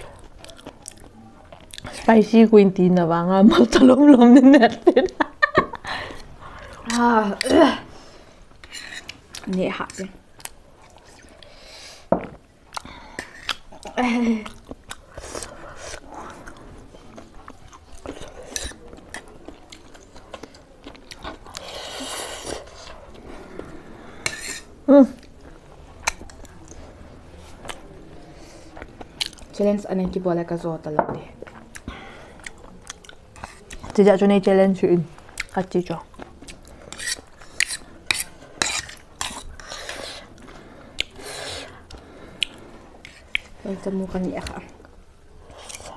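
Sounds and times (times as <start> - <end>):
people chewing noodles: 0.0 - 2.4, 4.6 - 29.6, 31.4 - 34.0, 35.1 - 45.9
utensils scraping bowl: 8.6 - 10.1, 24.2 - 24.7, 36.9 - 40.3.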